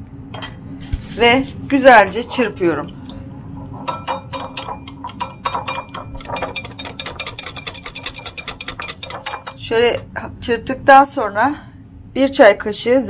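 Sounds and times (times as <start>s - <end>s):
whisk clicking against glass bowl: 3.9s - 10.1s.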